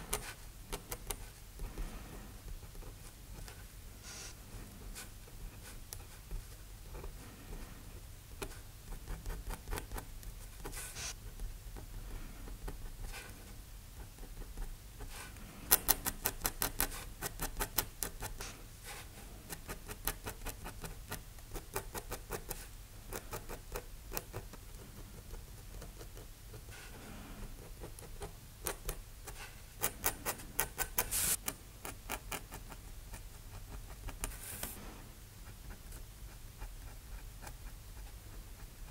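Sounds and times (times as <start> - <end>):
pen nib scratching on paper: 8.4 - 11.2, 11.8 - 34.8, 35.4 - 38.9.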